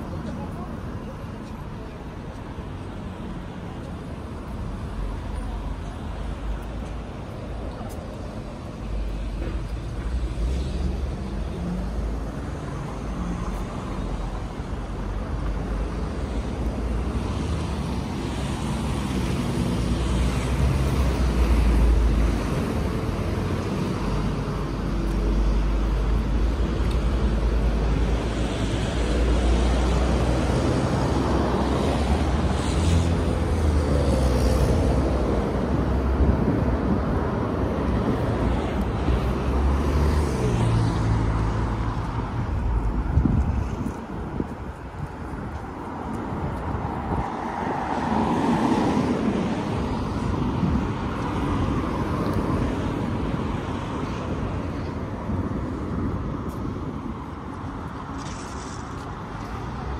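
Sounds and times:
traffic rumble: 0.0s - 59.9s.

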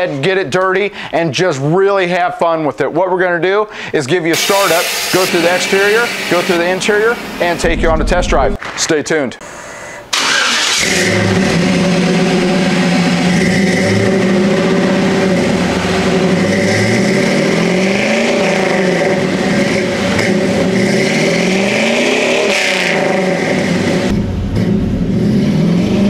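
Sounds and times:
car engine revving: 4.4s - 8.6s, 10.2s - 26.0s.

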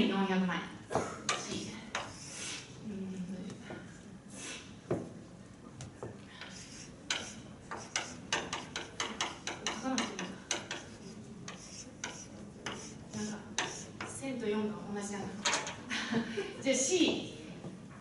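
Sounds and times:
chalk tapping on a blackboard: 1.3s - 2.4s, 5.9s - 14.2s.

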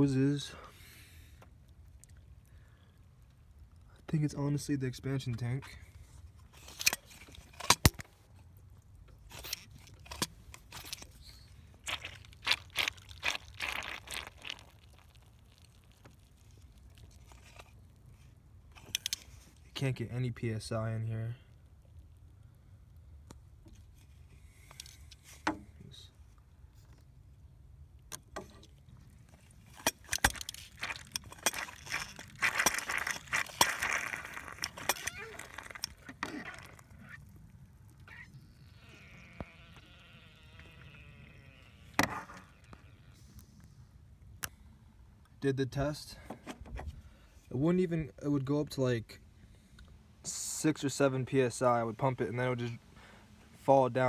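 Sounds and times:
phone handling clicks and rustles: 6.4s - 8.4s, 28.1s - 36.4s
footsteps: 30.2s - 35.9s.

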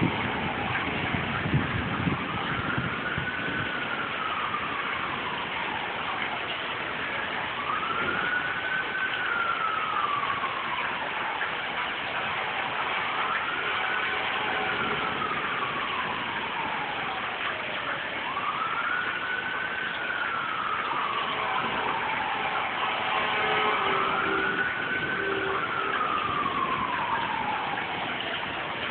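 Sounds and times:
heavy rain hissing: 0.0s - 28.9s
siren wailing: 0.0s - 28.9s.

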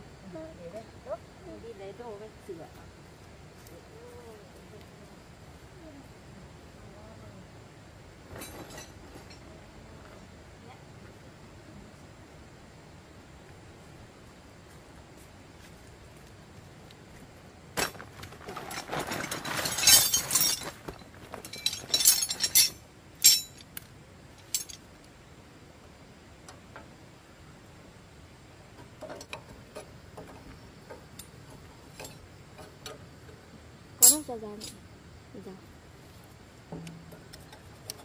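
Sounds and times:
hard objects clinking and rattling: 17.8s - 23.8s.

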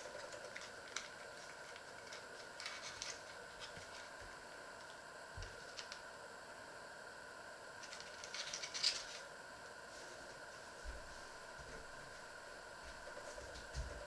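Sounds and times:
foil packet crinkling: 0.0s - 4.2s, 7.8s - 9.2s.

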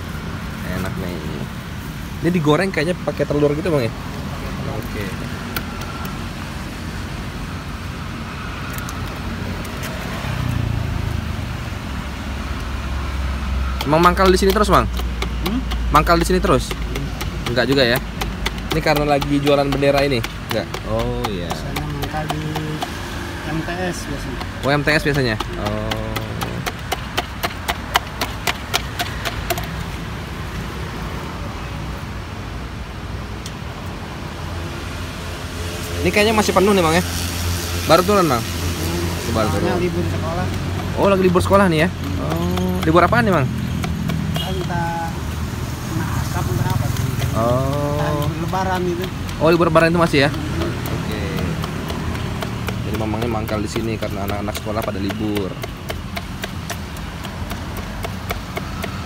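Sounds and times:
passing vehicles rumble: 0.0s - 59.0s
vehicle engine hum: 0.0s - 59.0s
sharp metallic clicks: 4.7s - 6.5s, 8.6s - 10.7s, 12.5s - 30.0s, 35.8s - 59.0s.

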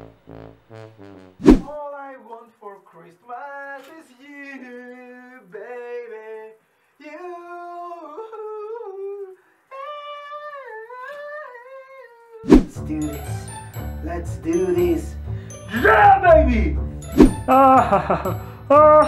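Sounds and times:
man singing: 2.3s - 13.1s.

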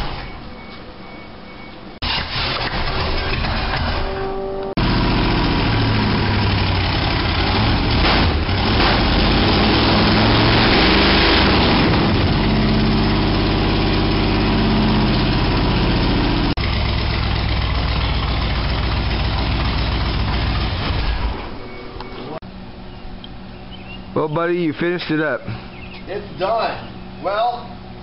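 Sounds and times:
engine revving and idling: 4.8s - 22.1s.

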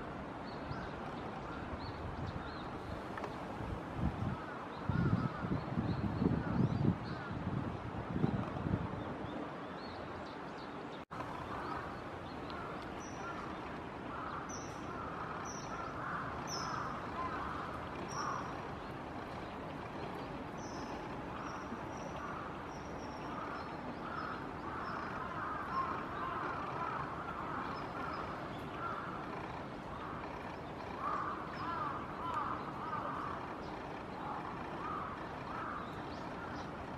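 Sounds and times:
outdoor background noise: 0.0s - 36.9s
small bird calling: 11.2s - 36.9s.

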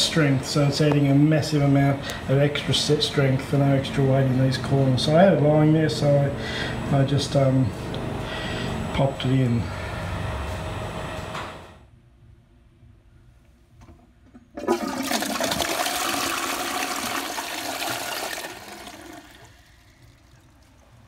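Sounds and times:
toilet flushing: 14.2s - 21.0s.

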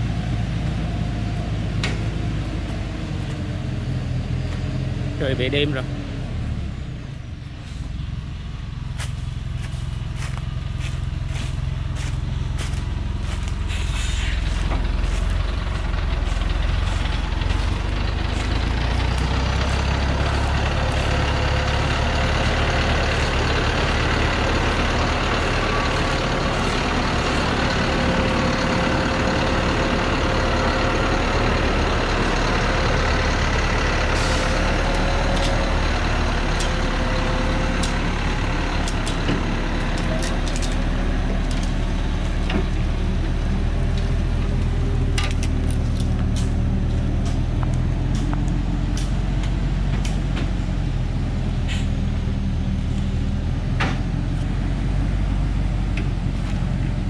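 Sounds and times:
truck diesel engine running: 0.0s - 57.0s.

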